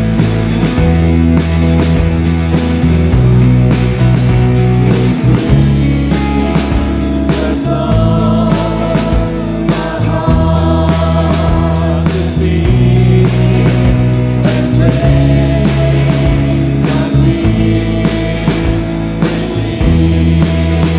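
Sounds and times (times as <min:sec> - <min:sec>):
worship band playing: 0:00.0 - 0:20.9
group of singers singing: 0:04.8 - 0:20.9.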